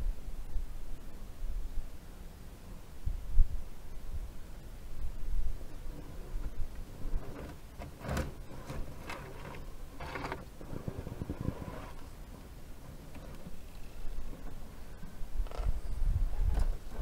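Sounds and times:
rc car motor and gear whine: 0:05.8 - 0:12.2, 0:12.9 - 0:17.0.

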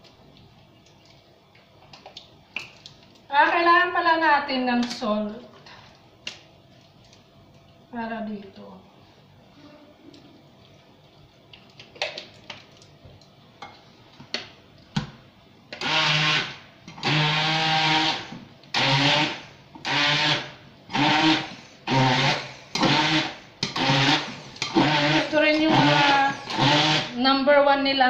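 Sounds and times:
stick blender bursts: 0:15.8 - 0:27.2.

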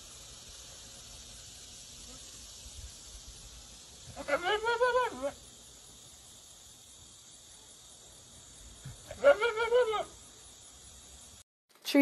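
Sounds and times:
goat bleating: 0:04.2 - 0:05.4, 0:09.1 - 0:10.1.

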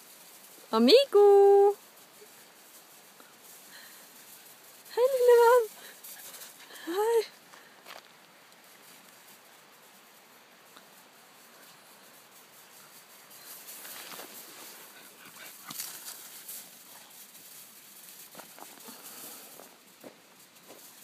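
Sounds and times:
paws crunching in snow and gravel: 0:00.0 - 0:21.0.

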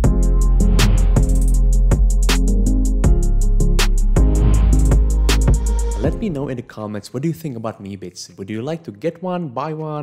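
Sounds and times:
background music with steady beat: 0:00.0 - 0:06.6.

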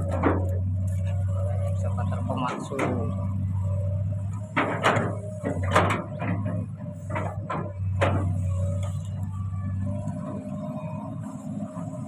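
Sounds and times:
excavator diesel engine running: 0:00.0 - 0:12.0
short knocks and clatters: 0:04.3 - 0:09.0.

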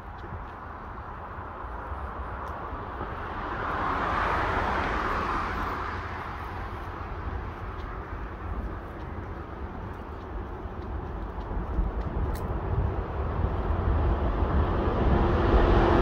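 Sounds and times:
wind rumble on microphone: 0:00.0 - 0:16.0
vehicle passing whoosh: 0:12.8 - 0:16.0.

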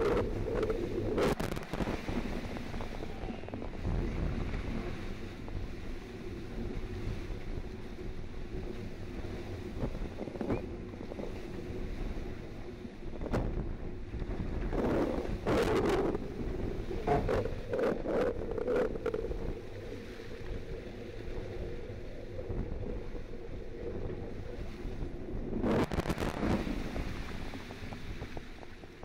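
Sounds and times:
sea water rushing along hull: 0:00.0 - 0:29.0
wind buffeting microphone: 0:00.0 - 0:29.0
water splashing: 0:13.3 - 0:29.0.

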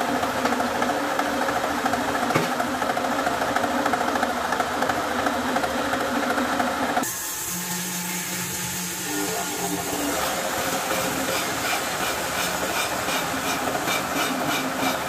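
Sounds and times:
wood lathe humming: 0:08.0 - 0:15.0.

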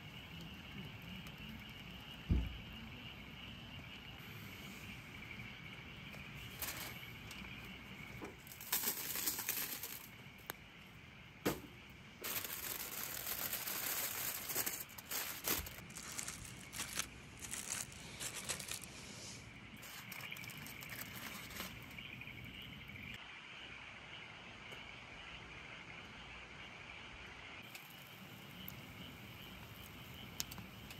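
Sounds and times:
insects chirring: 0:00.0 - 0:30.9
aluminium foil crinkling: 0:06.4 - 0:07.7, 0:08.4 - 0:10.2, 0:12.2 - 0:19.0, 0:19.8 - 0:22.2.

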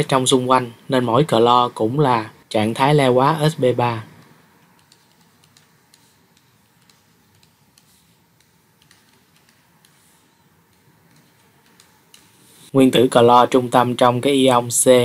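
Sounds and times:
low hiss: 0:00.0 - 0:15.0
stylus tapping on tablet: 0:04.2 - 0:12.5.

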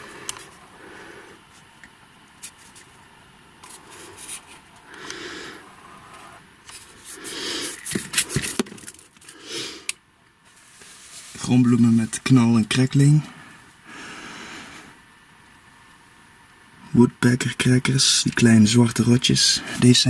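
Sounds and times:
objects scraping and rustling: 0:02.4 - 0:03.0, 0:03.6 - 0:05.1, 0:05.9 - 0:09.8, 0:10.4 - 0:11.7.

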